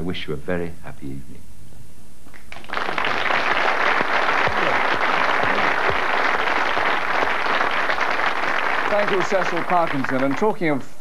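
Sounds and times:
audience applauding: 2.4 - 10.7.

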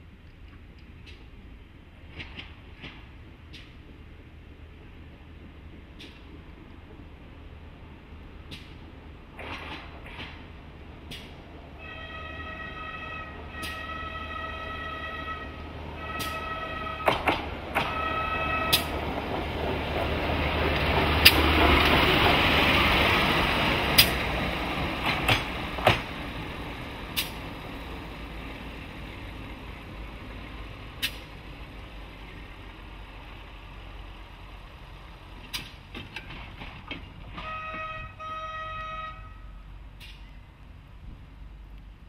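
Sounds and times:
rail vehicle engine and wheels: 0.0 - 42.0
high horn note: 11.8 - 18.9, 37.4 - 39.6
sharp clicks of wheels: 23.9 - 24.3, 30.9 - 31.4, 35.4 - 37.9, 40.0 - 40.7.

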